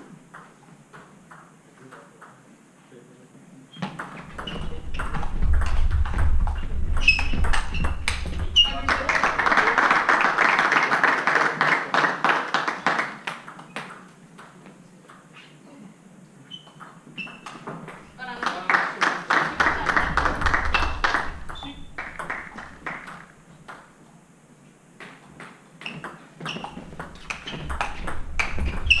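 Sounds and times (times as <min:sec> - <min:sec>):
people clapping: 0:08.0 - 0:13.9, 0:18.2 - 0:23.4
voices: 0:08.6 - 0:12.0, 0:18.0 - 0:22.8.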